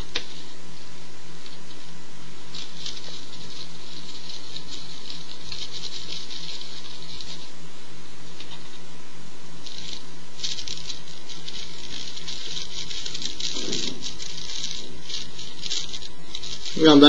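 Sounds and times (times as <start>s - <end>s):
electrical hum: 0.0s - 17.0s
rolling paper rustling: 1.4s - 7.6s, 9.6s - 17.0s.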